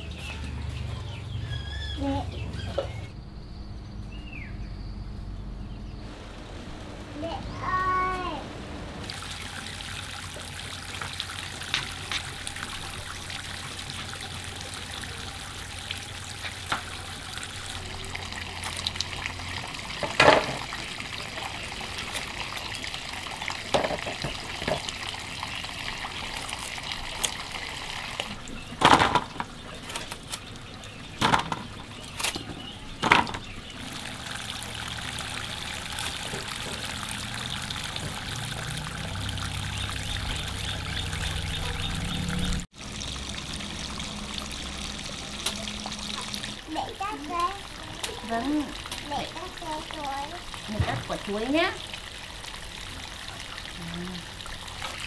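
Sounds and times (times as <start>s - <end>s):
water trickling and pouring: 6.0s - 55.0s
sharp knocks and clatters: 28.8s - 30.2s, 31.2s - 33.5s.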